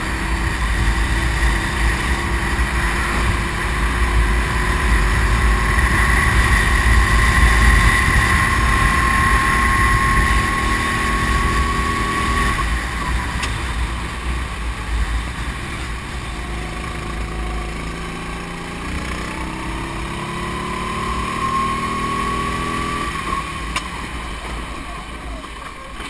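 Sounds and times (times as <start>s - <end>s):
wind rumble on microphone: 0.0s - 16.4s
kart engine accelerating: 0.0s - 26.0s.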